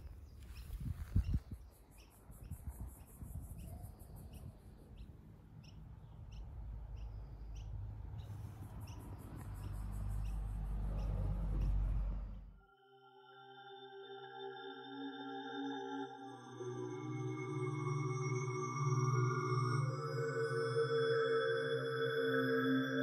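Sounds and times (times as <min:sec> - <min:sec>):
small bird chirping: 0:00.0 - 0:12.4
low rumble: 0:08.8 - 0:12.6.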